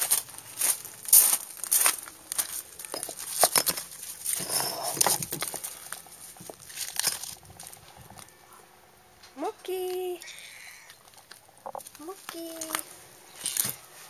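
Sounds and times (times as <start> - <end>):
footsteps crunching on gravel: 0.0 - 8.2.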